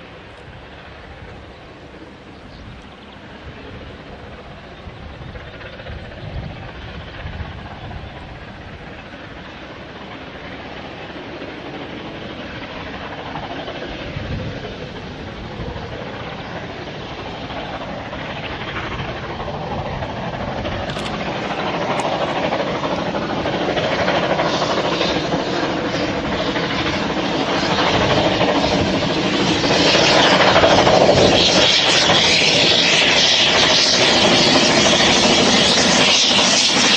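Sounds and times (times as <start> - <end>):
steam locomotive exhaust: 28.1 - 36.9.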